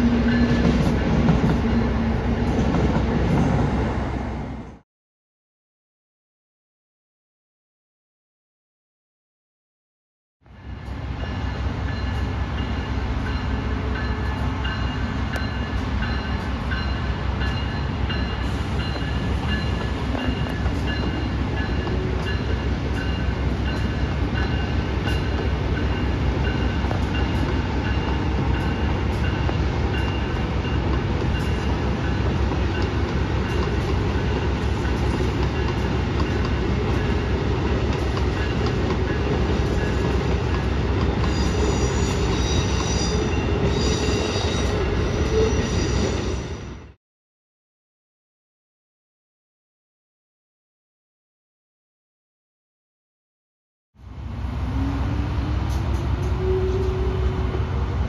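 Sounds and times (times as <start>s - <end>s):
train rumbling: 0.0s - 4.8s, 10.5s - 47.0s, 54.0s - 58.0s.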